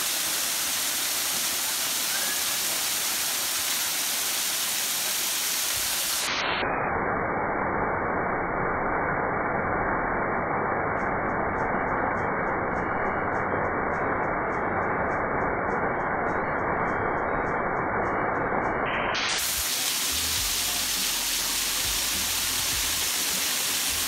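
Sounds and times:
small waterfall splashing on rocks: 0.0 - 6.3, 19.3 - 24.0.

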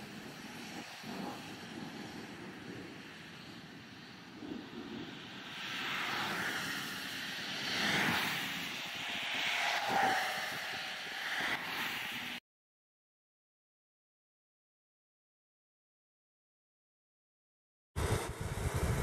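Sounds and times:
cars passing on wet road: 5.1 - 12.4.

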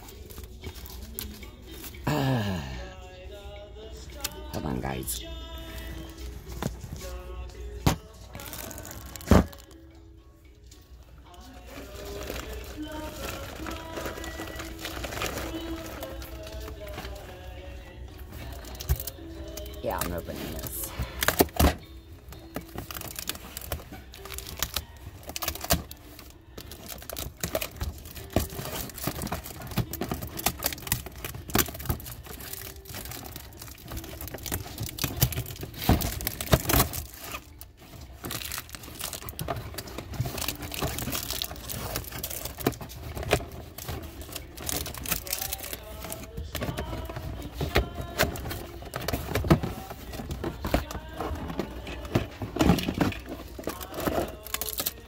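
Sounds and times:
plastic packaging crinkling: 8.0 - 9.9, 11.4 - 17.7, 22.4 - 55.0.

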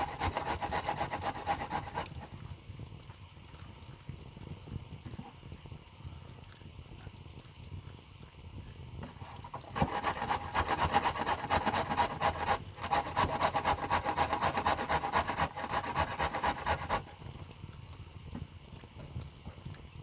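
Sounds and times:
carrot rasping on metal grater: 0.0 - 2.2, 9.6 - 17.0.

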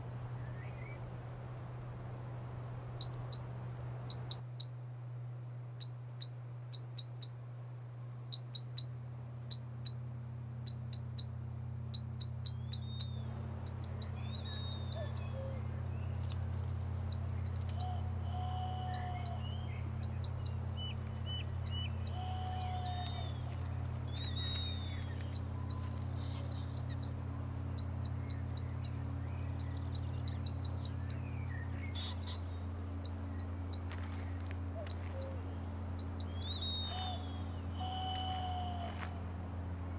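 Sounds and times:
steady low drone: 0.0 - 39.9
bird-like chirps and whistles: 12.5 - 13.3, 14.0 - 16.2, 17.4 - 27.1, 36.2 - 39.0.

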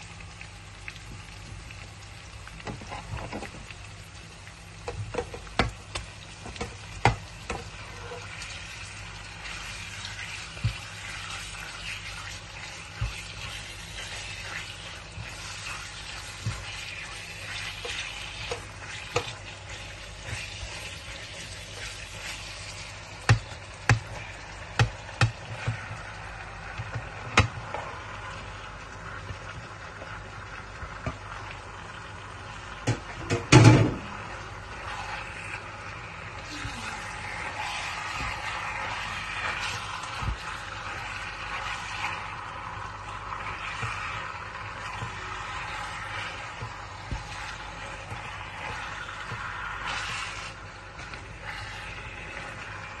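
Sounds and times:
food sizzling in a wok: 0.0 - 53.0
spoon scraping pan: 6.5 - 22.8, 43.3 - 52.8.

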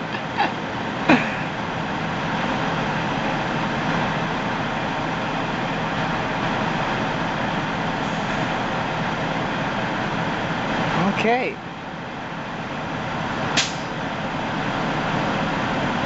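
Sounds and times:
engine and traffic noise: 0.0 - 16.0.

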